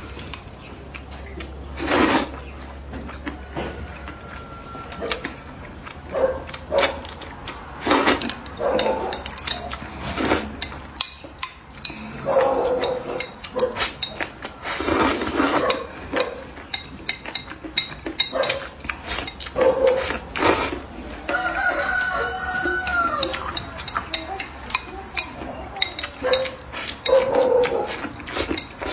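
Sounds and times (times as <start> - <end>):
noodles slurped and chewed: 0.0 - 28.9
chicken calling: 21.2 - 23.8.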